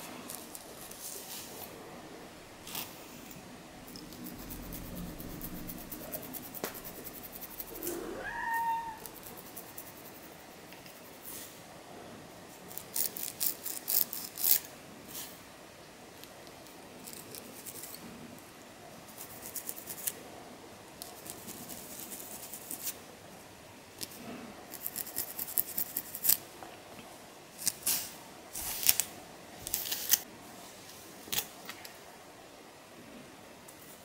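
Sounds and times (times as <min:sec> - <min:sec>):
fingernails scratching scalp: 0:04.0 - 0:08.0.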